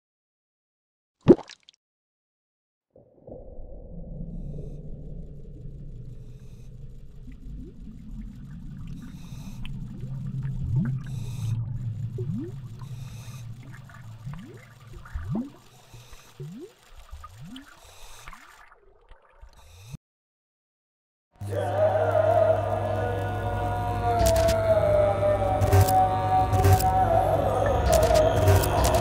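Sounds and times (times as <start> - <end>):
bubbles bloop rising: 1.3 - 1.6, 12.0 - 15.7, 16.3 - 19.5
low underwater rumble: 3.0 - 17.6.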